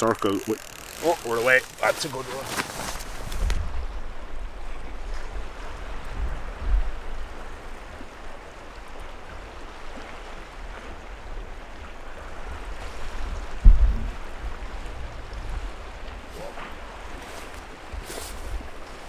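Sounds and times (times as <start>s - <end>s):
sea waves on rocky shore: 0.0s - 19.0s
wind buffeting microphone: 0.0s - 19.0s
loud low thump: 13.6s - 14.2s.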